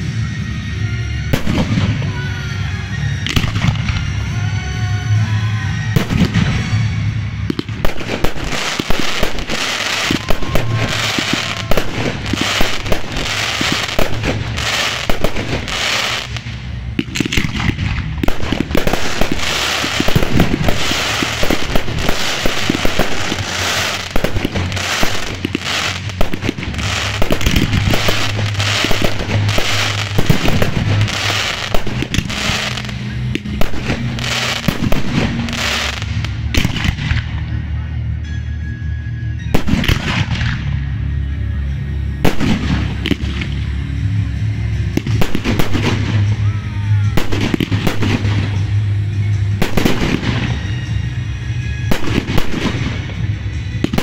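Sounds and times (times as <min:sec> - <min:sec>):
fireworks bangs and crackles: 0:00.0 - 0:37.7, 0:39.4 - 0:54.0.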